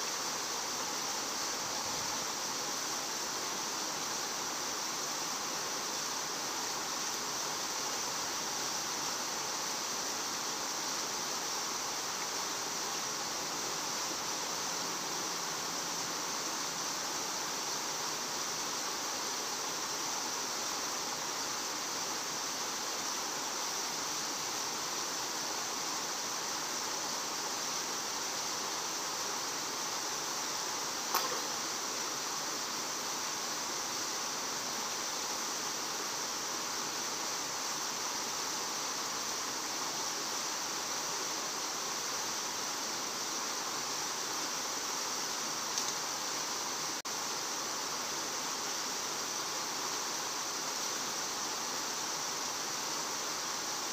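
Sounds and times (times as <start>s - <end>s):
steady outdoor hiss: 0.0s - 53.9s
short sharp click: 31.1s - 31.5s.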